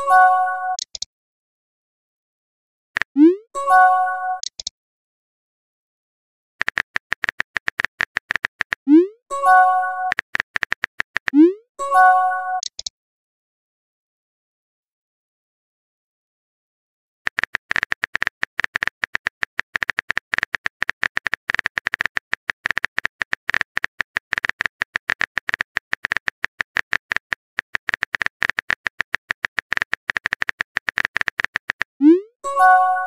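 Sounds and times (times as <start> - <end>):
rapid sharp clicks: 6.6 - 8.9, 10.1 - 11.4, 17.3 - 32.0.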